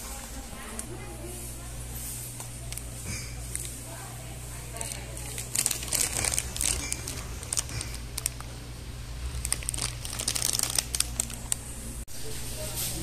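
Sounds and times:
steady low hum: 0.0s - 12.6s
plastic packets crinkling: 4.6s - 11.8s.

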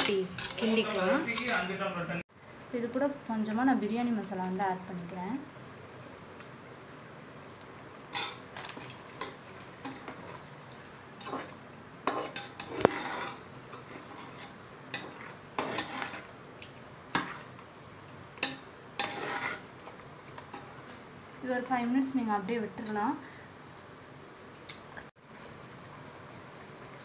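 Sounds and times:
ladle scraping metal pot: 11.2s - 16.4s, 18.4s - 19.7s.

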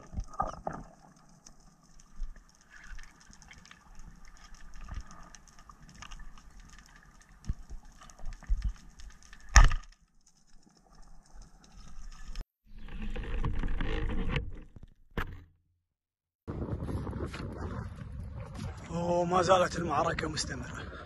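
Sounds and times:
faint underwater crackling: 0.0s - 14.8s.

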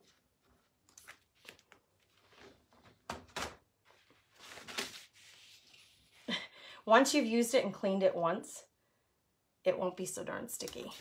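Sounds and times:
plastic sheet rustling: 0.9s - 6.2s.

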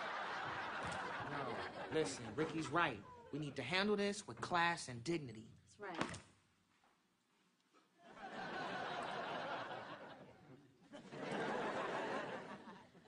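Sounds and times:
audience laughing: 0.0s - 3.4s, 8.0s - 13.0s.

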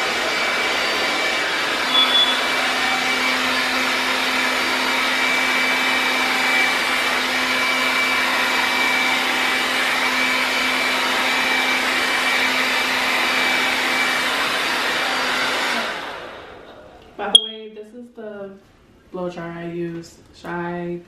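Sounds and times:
hair dryer running: 0.0s - 16.7s.

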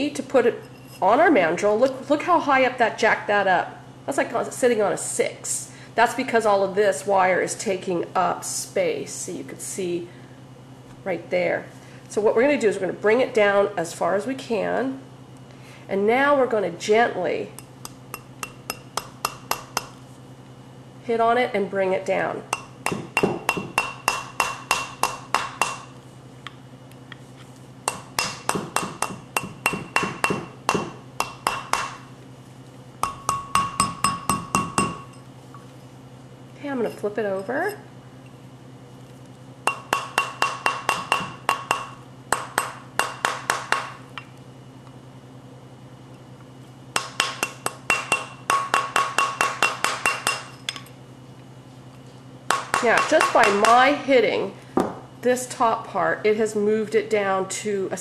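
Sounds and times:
mallet tapping metal ring: 22.5s - 25.8s, 27.9s - 31.9s, 33.0s - 35.2s, 39.7s - 43.8s
steel mandrel ringing: 33.0s - 35.2s.

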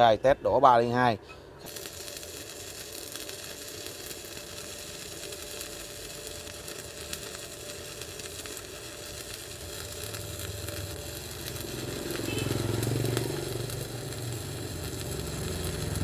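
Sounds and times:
welding arc crackling sizzle: 0.6s - 16.0s.

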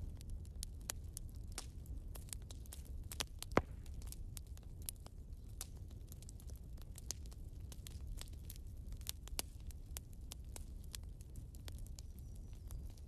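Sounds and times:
fire crackling and snapping: 0.0s - 13.0s
loud pop of burning log: 3.2s - 4.2s.

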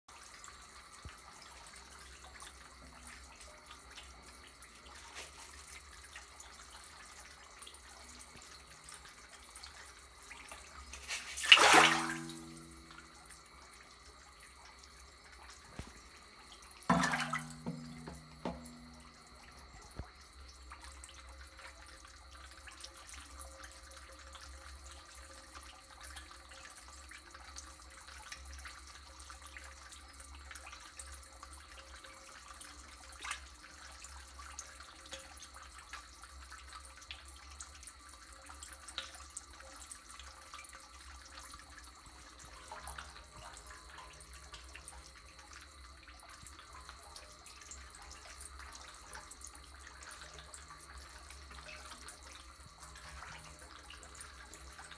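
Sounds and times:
water sloshing and dripping: 0.1s - 54.9s
fish popping and splashing at surface: 10.9s - 13.2s, 16.9s - 19.4s.

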